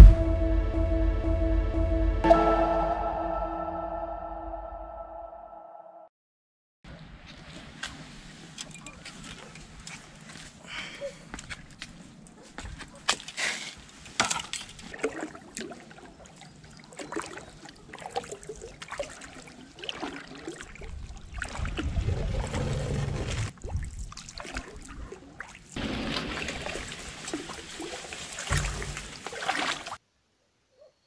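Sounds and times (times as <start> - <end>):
water sloshing around boat: 6.9 - 30.0.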